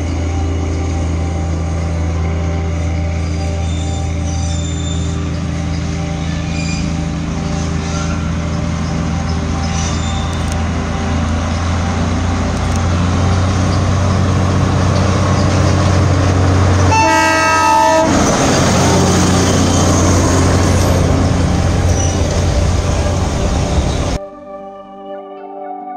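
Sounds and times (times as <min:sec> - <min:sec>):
diesel locomotive engine drone: 0:00.0 - 0:24.2
train horn: 0:16.8 - 0:18.4.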